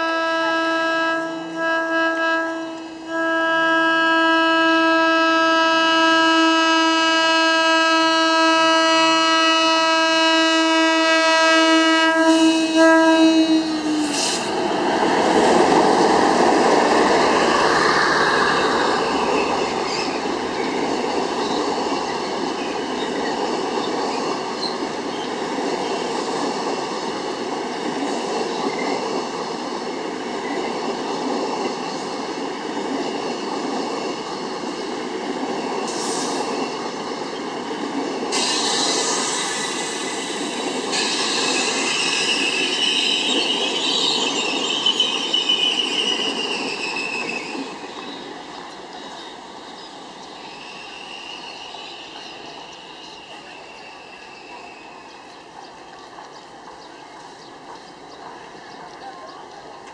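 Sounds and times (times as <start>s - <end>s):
locomotive horn blasts: 0.0s - 14.3s
train wheels clattering on rails: 13.7s - 59.9s.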